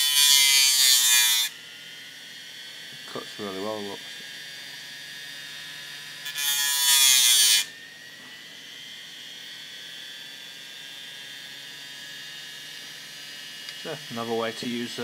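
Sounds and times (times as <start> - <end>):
metal tool grinding on abrasive: 0.0 - 1.5, 5.5 - 7.7
spindle motor high whine: 1.4 - 6.4, 7.2 - 15.0.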